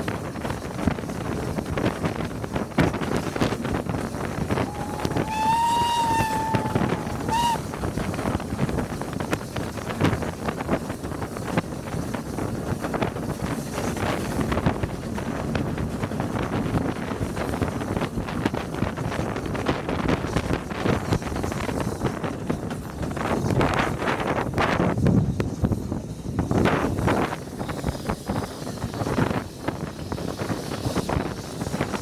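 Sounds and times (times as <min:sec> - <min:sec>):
train rumble and clatter: 0:00.0 - 0:32.0
wind on microphone: 0:00.0 - 0:32.0
steam locomotive whistle: 0:04.6 - 0:07.8.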